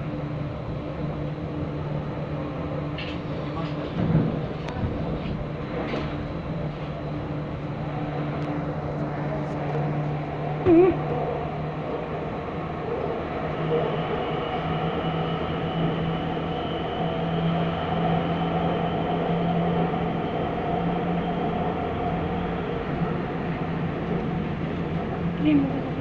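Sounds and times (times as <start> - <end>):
electric train running on track: 0.0 - 26.0
faint high whine: 12.9 - 26.0.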